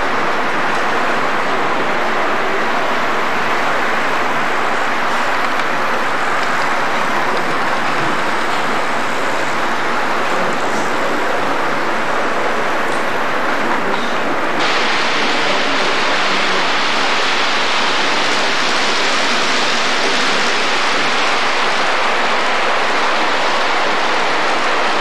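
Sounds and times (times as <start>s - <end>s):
loud rushing hiss: 14.5s - 25.0s.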